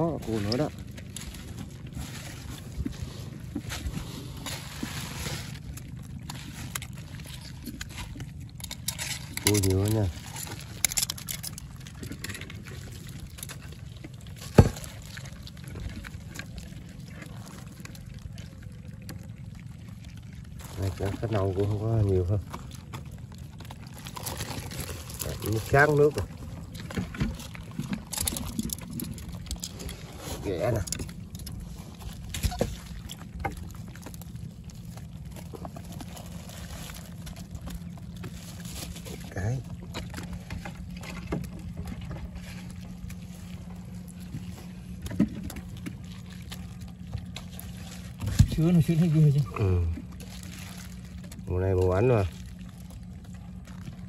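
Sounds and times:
hand rummaging through wet debris: 0.0 - 54.0
low steady rumble: 0.0 - 54.0
steady low hum: 0.0 - 54.0
crackling clicks and ticks: 7.6 - 12.6, 26.8 - 30.0.

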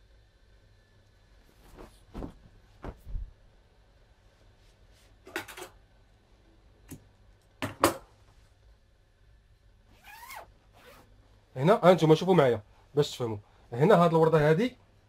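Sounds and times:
fabric rustling: 1.4 - 3.4.

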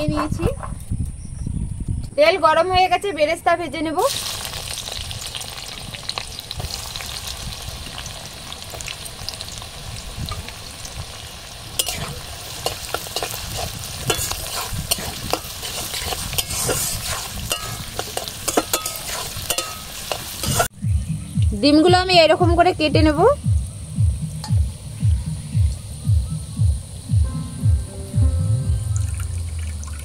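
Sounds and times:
onions sizzling in oil: 4.0 - 20.7
metal spatula scraping pan: 11.8 - 20.7.

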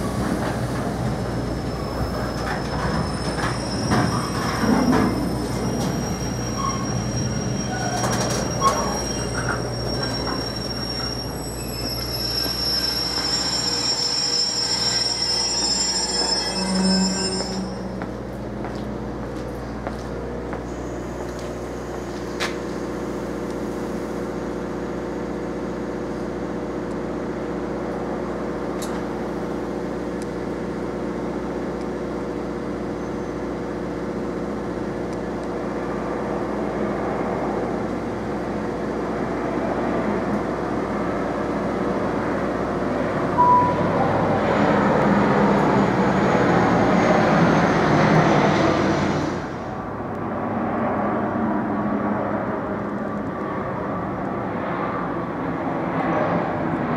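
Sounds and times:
train rumbling: 0.0 - 56.9
train wheels squealing: 1.1 - 18.3, 43.4 - 49.6.

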